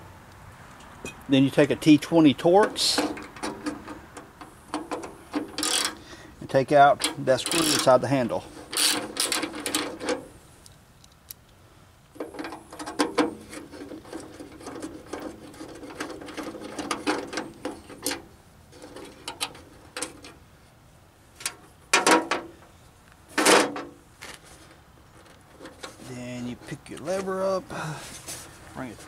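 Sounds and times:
ratchet wrench clicking: 5.6 - 6.0, 8.7 - 9.8.

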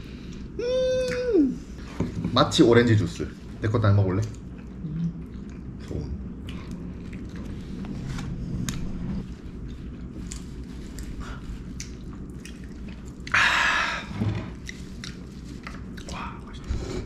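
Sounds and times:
low room hum: 0.0 - 17.0
person chewing: 4.2 - 13.7, 14.5 - 17.0.

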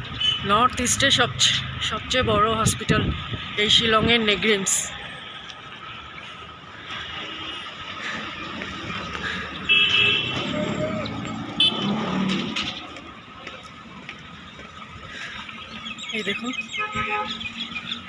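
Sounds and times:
traffic noise: 0.0 - 18.0
car driving by: 7.0 - 15.1.

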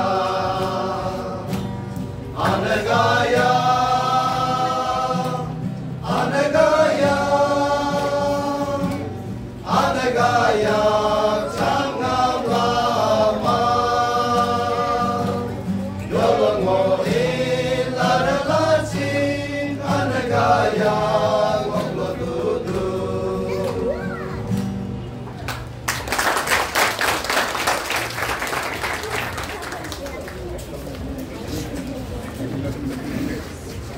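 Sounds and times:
men singing together: 0.0 - 1.6, 2.3 - 23.9
acoustic guitar: 0.0 - 26.4.

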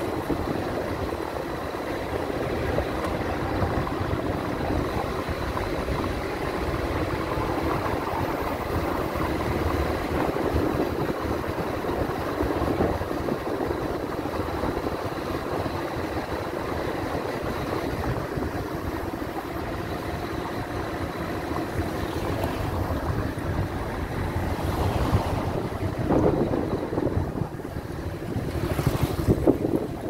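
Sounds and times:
car engine running: 0.0 - 30.0
road and tyre noise: 0.0 - 30.0.

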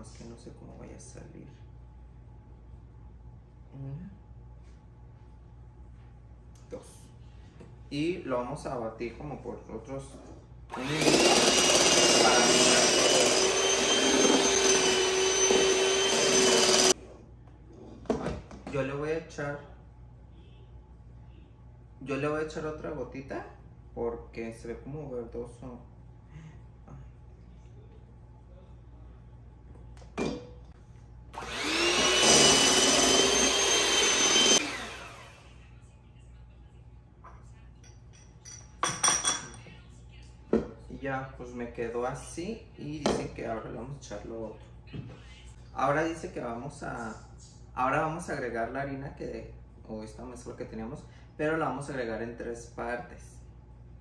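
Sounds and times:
electric mixer motor whining: 10.7 - 17.0, 31.4 - 35.5.

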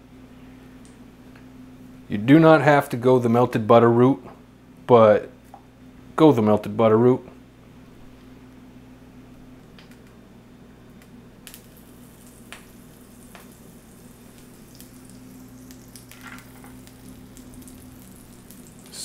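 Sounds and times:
steady low hum: 0.0 - 19.0
oil crackling and popping: 11.4 - 19.0
fish sizzling in hot oil: 11.5 - 19.0.

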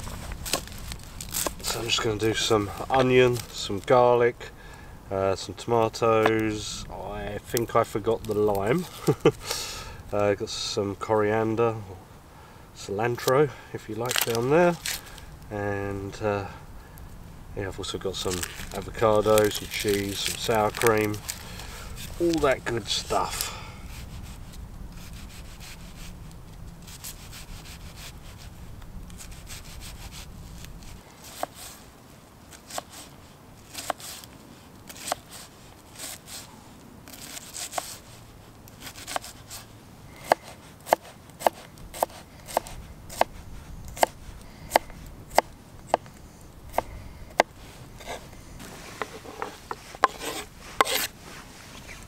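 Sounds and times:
knife cutting onion: 40.2 - 46.1, 46.7 - 48.2, 49.0 - 51.1.

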